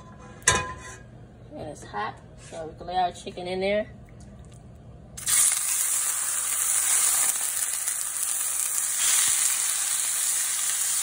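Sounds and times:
chicken sizzling in a skillet: 0:05.2 - 0:11.0.

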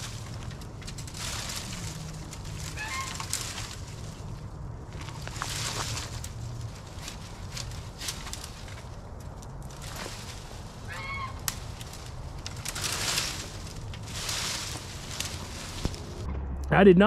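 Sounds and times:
footsteps on dry leaves: 0:00.0 - 0:16.3
chicken squawk: 0:02.7 - 0:03.2, 0:10.9 - 0:11.4.

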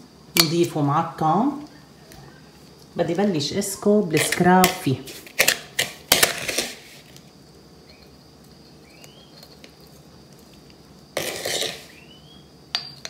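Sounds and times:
spoon scraping granular scrub: 0:04.2 - 0:07.2, 0:11.2 - 0:12.1.

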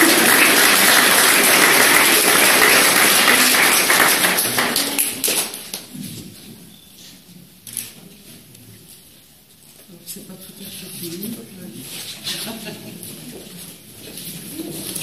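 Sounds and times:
crowd clapping: 0:00.0 - 0:05.9.

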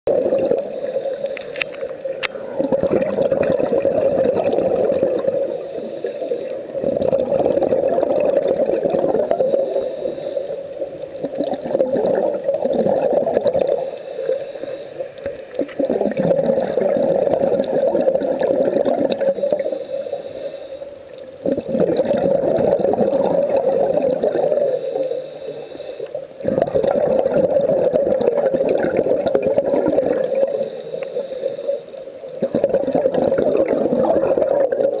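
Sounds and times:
exhaled bubbles underwater: 0:00.1 - 0:35.0
regulator inhalation hiss: 0:00.6 - 0:02.1, 0:05.4 - 0:06.8, 0:09.3 - 0:10.9, 0:13.7 - 0:15.2, 0:19.3 - 0:21.0, 0:24.4 - 0:26.2, 0:30.2 - 0:32.1.

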